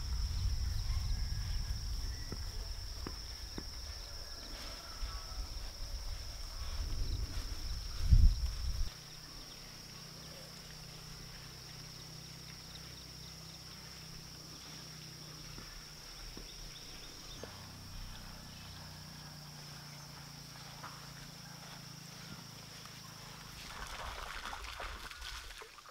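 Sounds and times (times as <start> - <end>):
loud low rumble: 0.0 - 4.2
insects droning: 0.0 - 25.9.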